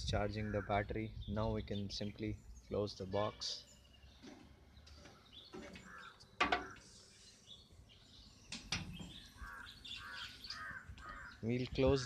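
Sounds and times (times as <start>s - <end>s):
birds chirping: 0.0s - 12.0s
metal lid knocking shut: 6.4s - 6.8s.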